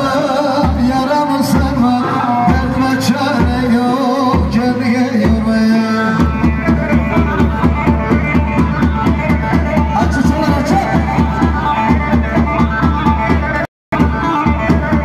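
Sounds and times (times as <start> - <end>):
fast drum beat: 0.0 - 15.0.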